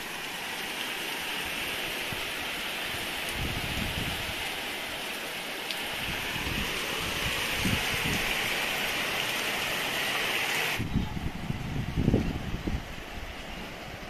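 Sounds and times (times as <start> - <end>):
heavy rain pouring: 0.0 - 14.0
wind buffeting microphone: 2.1 - 4.5, 6.0 - 8.6, 10.7 - 14.0.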